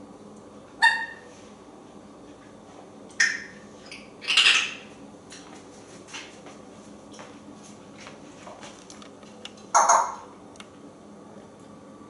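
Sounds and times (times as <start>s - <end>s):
parrot harsh squawks: 0.8s - 1.3s, 4.2s - 4.8s, 9.8s - 10.2s.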